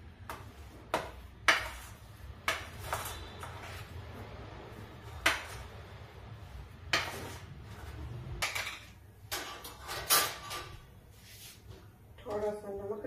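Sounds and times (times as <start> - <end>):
steel utensils clattering: 8.4 - 10.9.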